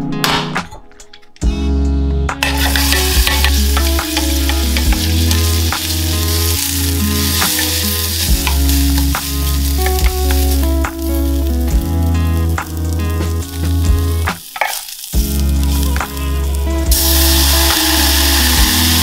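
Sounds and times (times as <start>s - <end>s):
background music with bass line: 0.0s - 14.6s, 15.2s - 19.0s
vegetables sizzling in hot oil: 2.4s - 19.0s.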